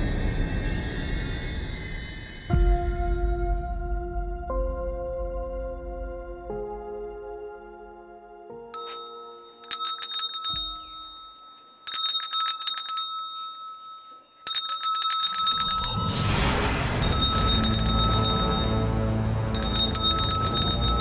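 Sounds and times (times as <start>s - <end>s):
rush of noise: 0.0s - 2.8s, 15.7s - 21.0s
low droning music: 0.0s - 9.8s, 16.0s - 21.0s
hand bell ringing: 8.8s - 16.2s, 16.9s - 21.0s.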